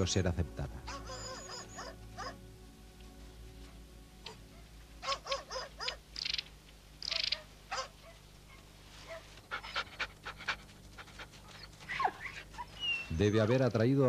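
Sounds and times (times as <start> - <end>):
dogs yelping and barking: 0.9 - 2.4, 4.2 - 6.4, 7.0 - 13.1.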